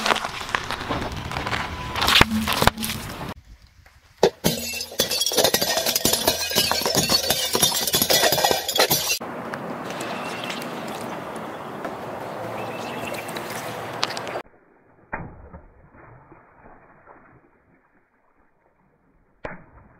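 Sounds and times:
plate cracking: 4.2s - 9.2s
plates shattering and clinking: 4.4s - 9.2s.

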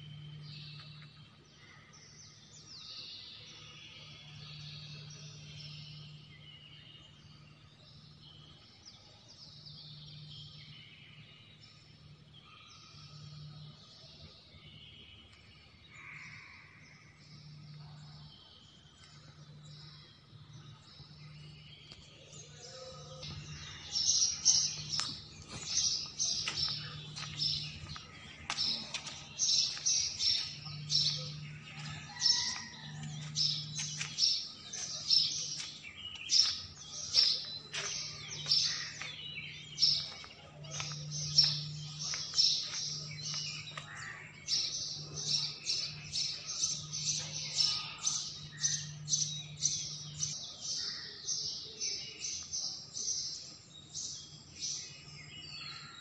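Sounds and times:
small birds chirping: 17.3s - 56.0s.

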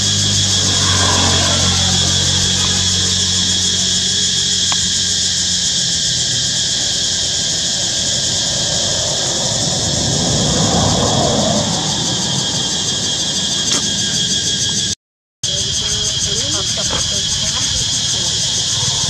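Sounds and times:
steady high-pitched buzz: 0.0s - 10.3s
road vehicle passing: 0.0s - 14.3s, 15.5s - 19.0s.

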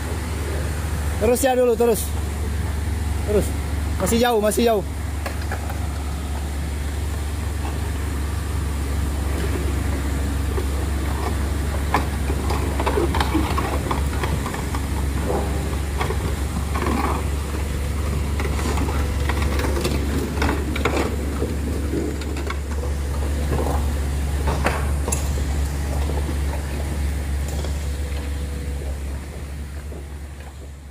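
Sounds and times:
heavy diesel engine rumbling: 0.0s - 30.9s
metal clanks and knocks: 18.0s - 30.7s.

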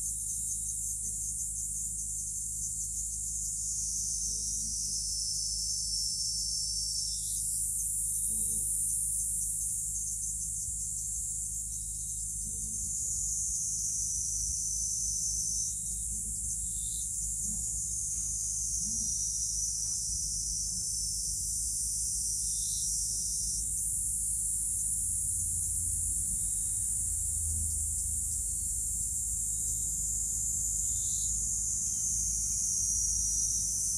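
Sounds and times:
high-pitched insect drone: 0.0s - 33.9s
low steady hum: 7.4s - 33.9s.

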